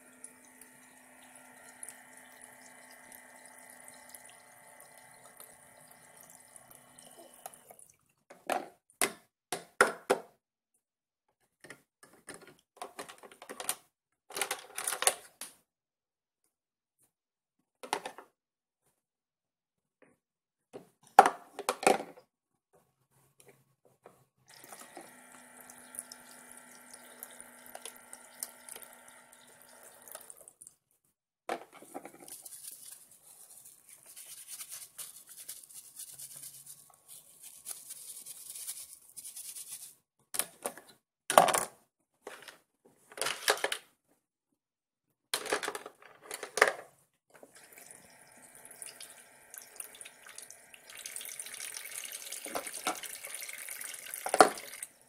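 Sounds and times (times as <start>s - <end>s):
small pump humming: 0.0s - 7.8s, 24.5s - 30.4s, 47.4s - 55.0s
water trickling from faucet: 0.0s - 8.2s, 24.5s - 30.7s, 47.5s - 55.0s
plastic dishes clattering: 21.1s - 22.2s, 45.4s - 46.9s, 54.2s - 54.6s.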